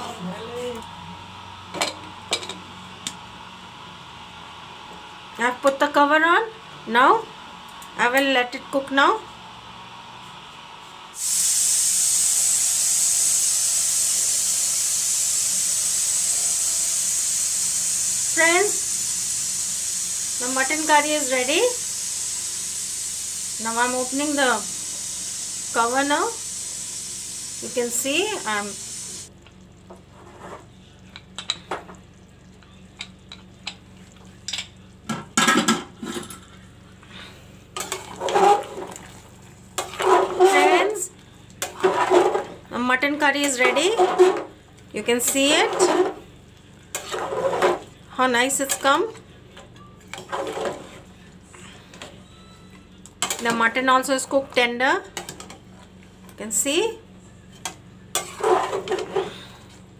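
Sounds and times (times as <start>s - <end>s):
pressure cooker steam hiss: 11.2s - 29.3s.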